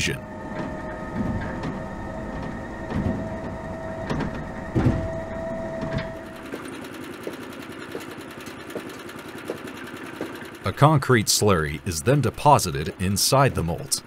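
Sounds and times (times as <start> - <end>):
low rumble: 0.0 - 6.4
crane hoist whine: 0.0 - 14.0
metallic clunks: 0.3 - 8.1.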